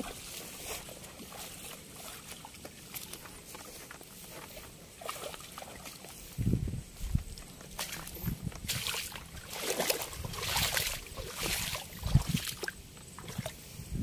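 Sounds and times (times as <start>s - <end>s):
river water splashing: 0.0s - 6.4s, 7.6s - 13.7s
net swishing through water: 7.8s - 13.6s.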